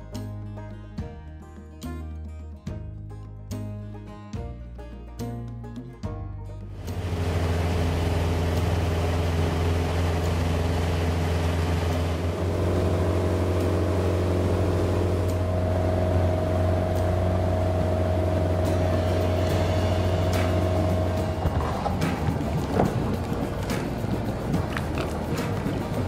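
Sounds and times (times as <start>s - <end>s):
motorboat engine running: 6.8s - 26.0s.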